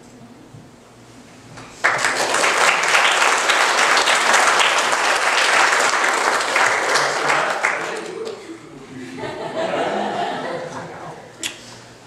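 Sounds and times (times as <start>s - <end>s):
crowd applauding: 1.8s - 8.5s.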